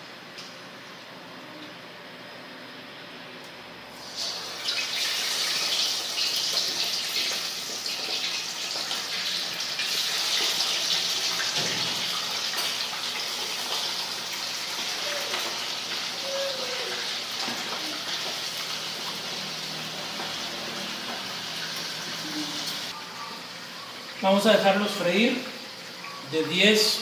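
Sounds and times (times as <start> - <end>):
fish frying in sizzling oil: 4.0 - 23.0.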